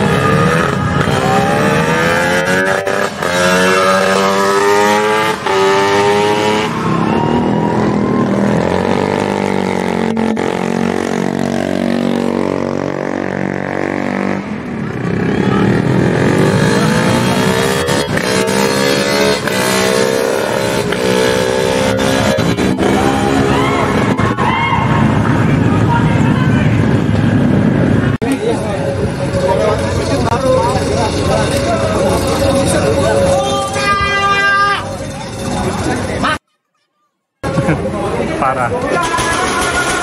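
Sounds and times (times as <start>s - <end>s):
motorcycle accelerating away: 0.0s - 25.7s
motorcycle engines revving hard: 0.0s - 33.9s.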